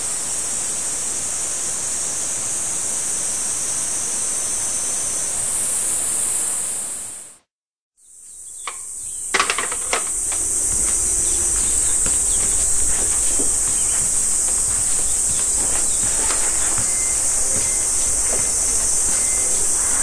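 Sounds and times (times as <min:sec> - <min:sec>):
cicadas chorus: 0:00.0 - 0:07.3, 0:08.0 - 0:20.0
sharp knocks: 0:09.4 - 0:20.0.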